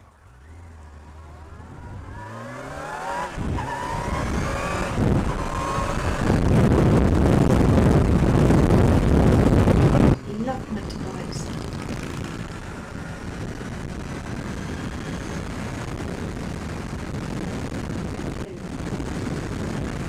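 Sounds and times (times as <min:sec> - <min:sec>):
motorcycle engine accelerating: 0:00.0 - 0:20.0
wind noise on microphone: 0:01.4 - 0:20.0.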